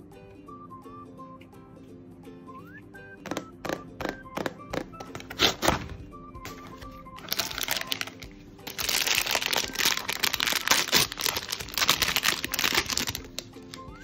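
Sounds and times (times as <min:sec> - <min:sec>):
soft background music: 0:00.0 - 0:14.0
foil bag crinkling: 0:06.5 - 0:14.0.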